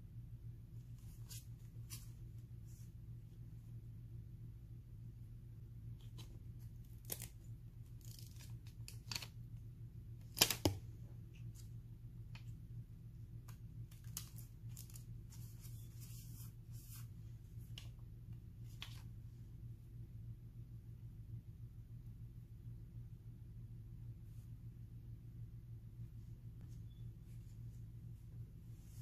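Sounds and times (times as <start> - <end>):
steady low hum: 0.0 - 29.0
sticker and paper crackling: 6.0 - 9.4, 13.4 - 17.0.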